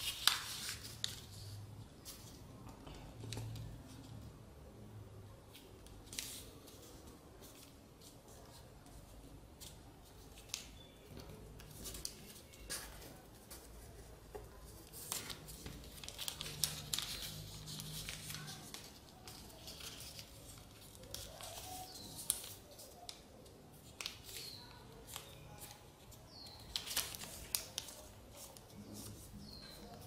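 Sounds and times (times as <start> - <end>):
paper being folded and creased: 0.0 - 2.4, 10.1 - 25.9, 26.6 - 30.0.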